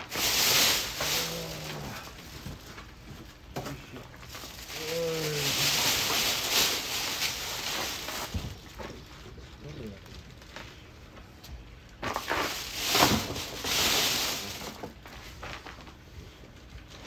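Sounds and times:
plastic bag crinkling: 0:00.0 - 0:10.9, 0:11.9 - 0:16.0.

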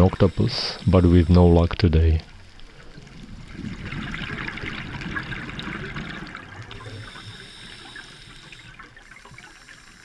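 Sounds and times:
underwater breath bubbling: 0:02.6 - 0:10.0.

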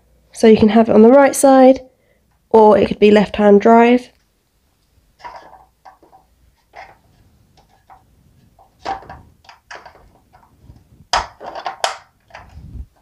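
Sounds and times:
plastic toy parts clicking: 0:11.1 - 0:12.6.

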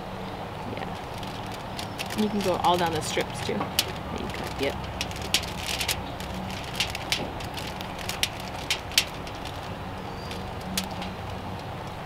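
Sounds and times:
campfire crackling pops: 0:00.8 - 0:12.0.

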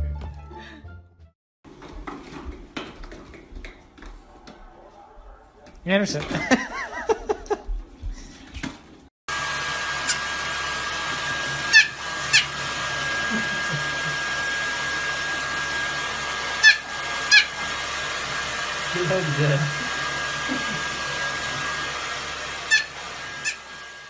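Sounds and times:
hair dryer running: 0:09.3 - 0:24.0.

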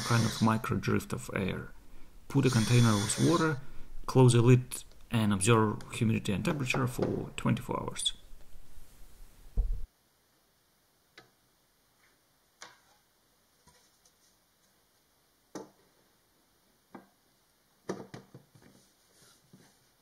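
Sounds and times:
dull thump: 0:09.5 - 0:09.9.

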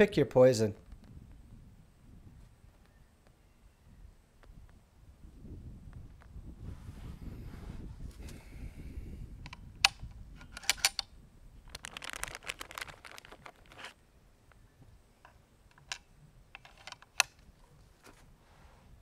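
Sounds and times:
air rifle action clicks: 0:09.4 - 0:11.1, 0:15.7 - 0:17.5
plastic bag rustling: 0:11.6 - 0:14.0.

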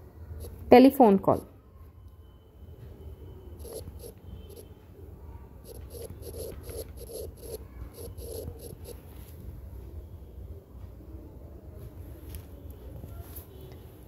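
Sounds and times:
stylus scratching on tablet screen: 0:00.4 - 0:00.7, 0:03.6 - 0:04.7, 0:05.6 - 0:09.1.

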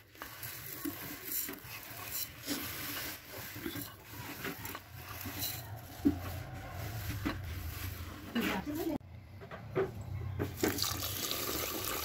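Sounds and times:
dry rice rustling on metal plate: 0:00.0 - 0:09.0.

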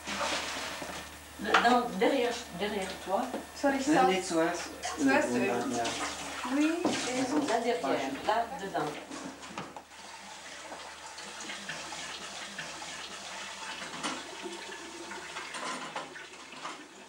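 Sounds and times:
tap water running into sink: 0:04.6 - 0:17.0.

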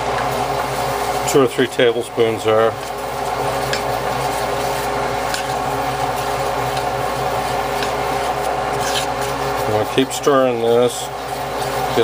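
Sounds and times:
mechanical hum: 0:00.0 - 0:12.0
wooden spoon scraping a pot: 0:02.4 - 0:12.0.

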